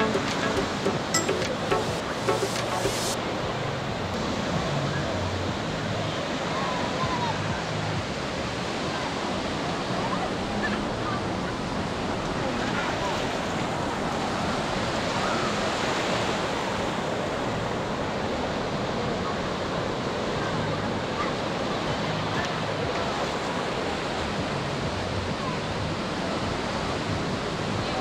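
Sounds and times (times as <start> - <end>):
ocean surf breaking: 0.0 - 7.2, 8.6 - 20.3
faint crowd chatter: 0.0 - 28.0.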